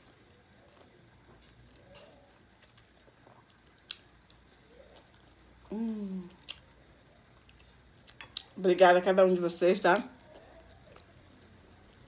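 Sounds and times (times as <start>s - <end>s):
person chewing: 1.3s - 8.6s, 10.2s - 11.7s
woman humming: 5.6s - 6.4s.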